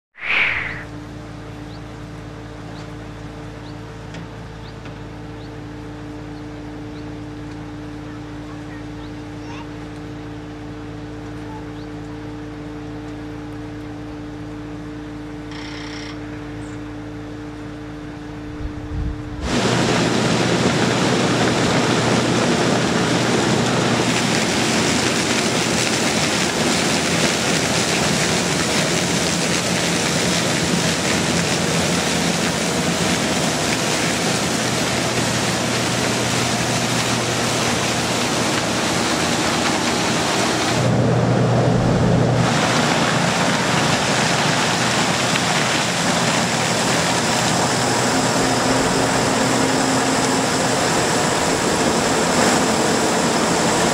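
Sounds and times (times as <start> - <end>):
rushing noise of threshing: 0.0 - 1.2, 19.0 - 53.9
combine harvester engine hum: 0.2 - 15.5, 16.2 - 53.9.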